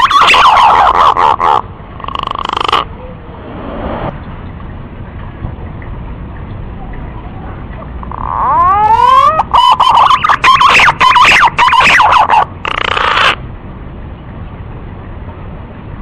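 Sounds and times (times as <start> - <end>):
pigeon call with whistles and warbling: 0.0 - 2.9, 8.1 - 13.4.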